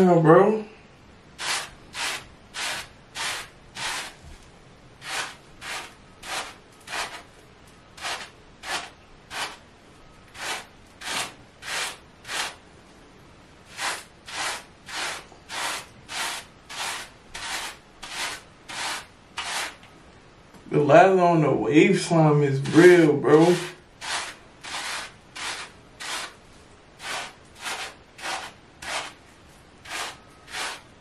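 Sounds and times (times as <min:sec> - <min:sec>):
brush scrubbing lathered hair: 0:01.4 - 0:04.2, 0:05.0 - 0:07.3, 0:08.0 - 0:09.6, 0:10.4 - 0:12.6, 0:13.7 - 0:19.8, 0:22.6 - 0:26.4, 0:27.0 - 0:29.2, 0:29.8 - 0:30.8.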